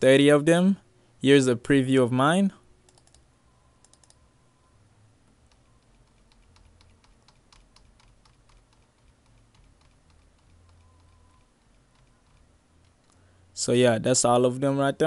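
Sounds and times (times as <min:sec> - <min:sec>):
computer keys clicking: 0:02.8 - 0:04.2, 0:05.5 - 0:13.2.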